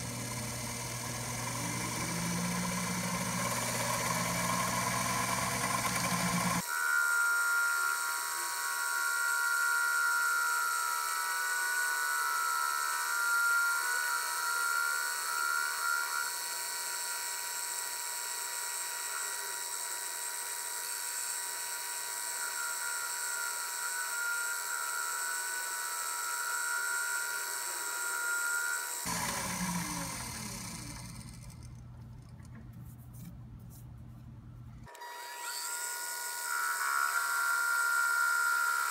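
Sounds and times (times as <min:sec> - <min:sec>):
low motor hum: 0:00.0 - 0:06.6, 0:29.1 - 0:34.9
lathe machine whine: 0:00.0 - 0:31.6.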